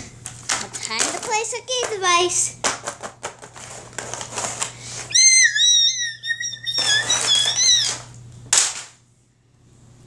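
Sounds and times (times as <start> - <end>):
high wavering whistle-like squeal: 5.1 - 8.0.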